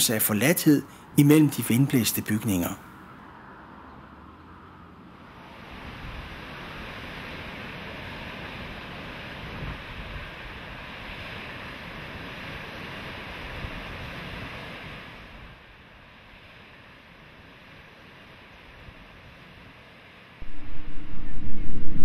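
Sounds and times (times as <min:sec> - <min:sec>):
ocean surf: 0:05.3 - 0:18.5, 0:19.3 - 0:22.0
wind rushing: 0:20.4 - 0:22.0.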